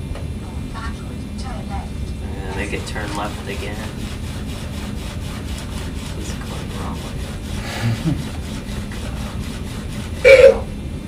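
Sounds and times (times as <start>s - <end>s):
toy robot gear motors grinding: 2.5s - 10.6s.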